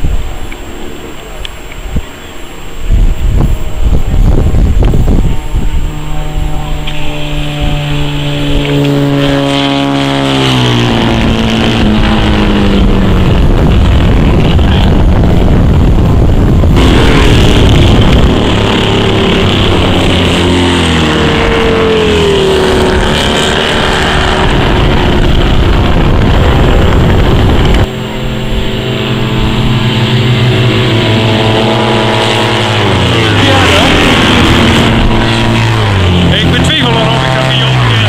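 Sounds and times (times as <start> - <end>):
racing motorcycles passing at speed: 0.0 - 38.0.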